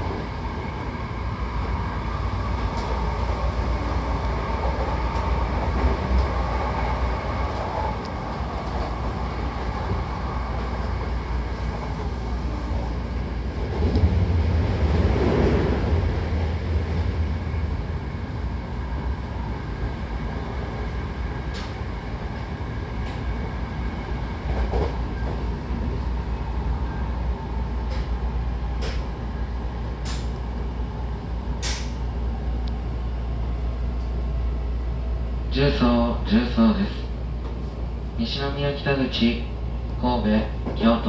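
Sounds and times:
train wheels rumbling on track: 0.0s - 35.4s.

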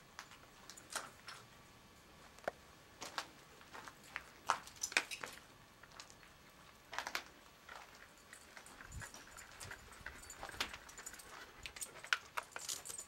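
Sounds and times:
footsteps crunching on gritty floor: 2.2s - 12.2s.

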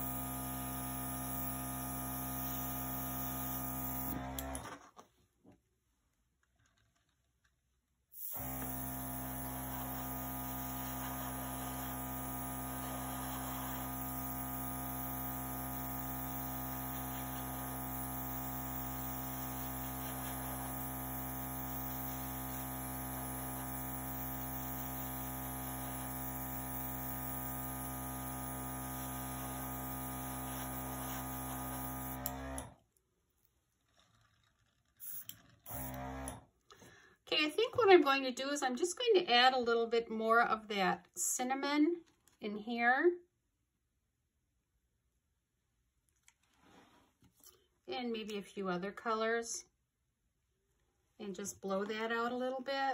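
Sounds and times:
air compressor motor hum: 0.0s - 4.6s, 8.2s - 32.7s, 35.0s - 36.4s.

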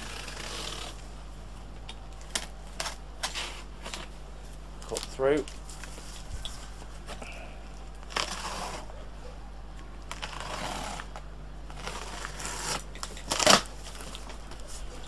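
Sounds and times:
knife slicing packing tape: 0.0s - 1.0s, 8.1s - 8.9s, 10.1s - 11.1s, 11.7s - 13.7s.

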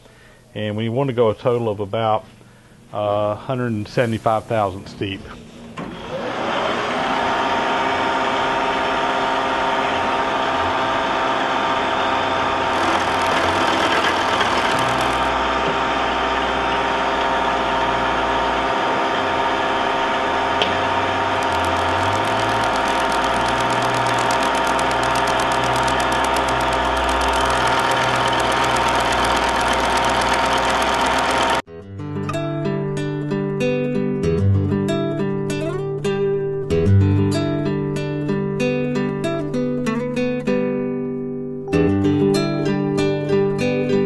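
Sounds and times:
milling machine whine: 5.8s - 31.6s
cutter ticking in metal: 21.2s - 31.6s.

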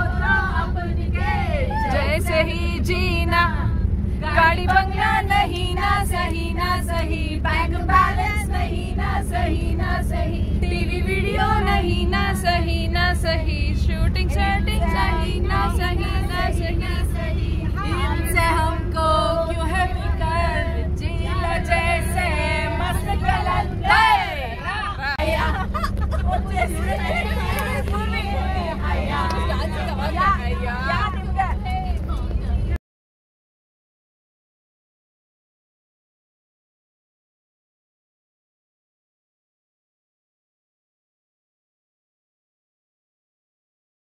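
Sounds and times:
women singing in unison: 0.0s - 25.7s, 26.4s - 31.8s
bus rumble: 0.0s - 32.8s.

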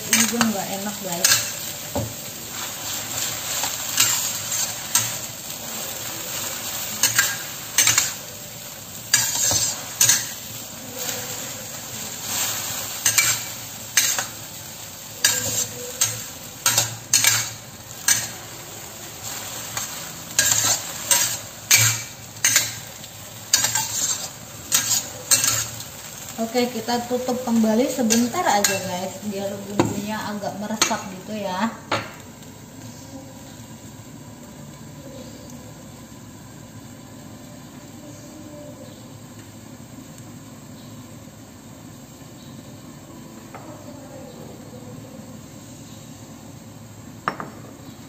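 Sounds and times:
leaves sizzling: 0.0s - 48.0s
metal spatula scraping a wok: 0.1s - 1.7s, 2.4s - 8.2s, 9.1s - 14.4s, 15.2s - 18.5s, 19.2s - 26.0s, 27.4s - 29.1s.

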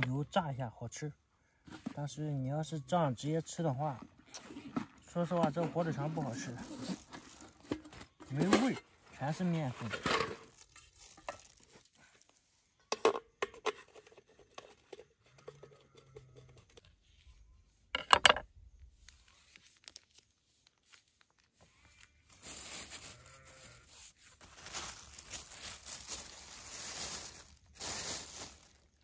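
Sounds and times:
plastic crinkling and rustling: 3.8s - 12.5s, 19.1s - 29.0s.

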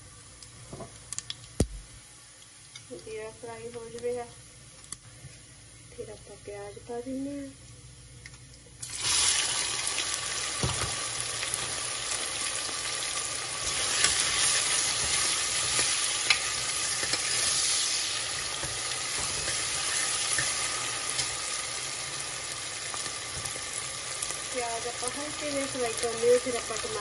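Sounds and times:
onions sizzling in hot oil: 8.8s - 27.0s.

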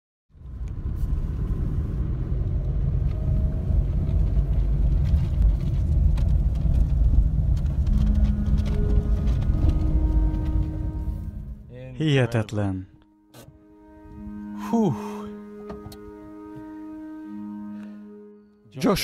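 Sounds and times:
road and wind noise inside car: 0.3s - 11.4s.

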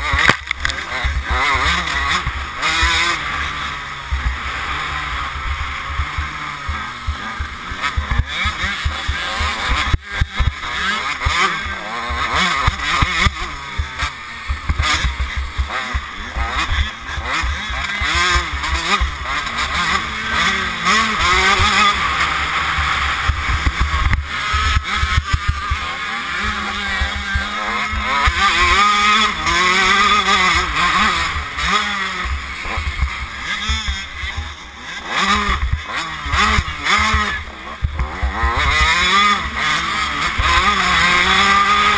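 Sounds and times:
motocross bike engine revving: 0.0s - 41.9s.

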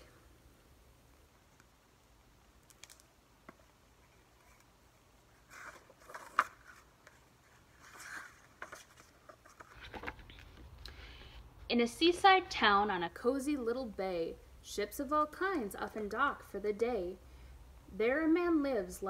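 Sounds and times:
book pages turning: 2.6s - 10.8s.

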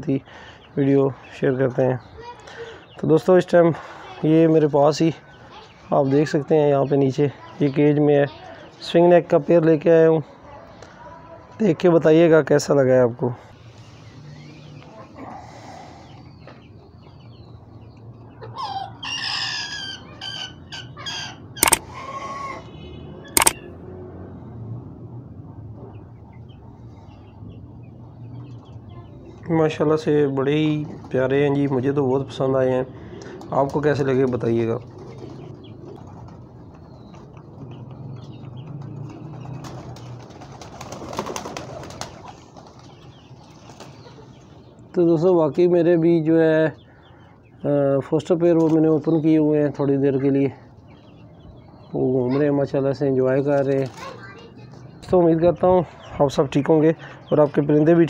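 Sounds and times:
rooster crowing: 18.5s - 22.7s
sharp loud clicks: 21.6s - 21.9s, 23.4s - 23.6s.

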